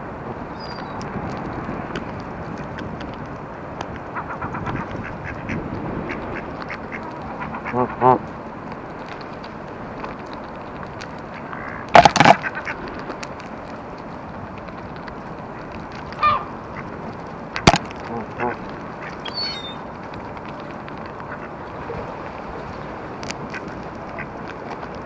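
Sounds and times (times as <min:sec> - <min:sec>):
ducks quacking: 0:04.1 - 0:08.2, 0:11.3 - 0:12.8, 0:16.2 - 0:16.9, 0:17.6 - 0:19.8, 0:21.2 - 0:21.6
geese honking: 0:04.2 - 0:08.2, 0:16.2 - 0:16.9, 0:17.6 - 0:19.8.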